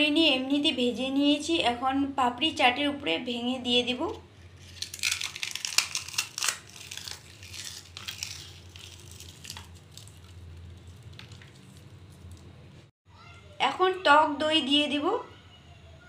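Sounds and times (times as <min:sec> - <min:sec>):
crisp wafers crunching: 0:04.6 - 0:12.5.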